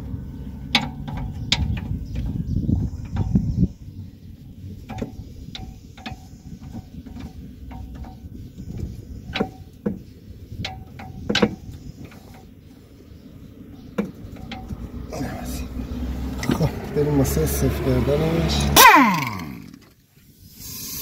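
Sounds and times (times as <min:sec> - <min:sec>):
low rumble: 0:12.6 - 0:18.8.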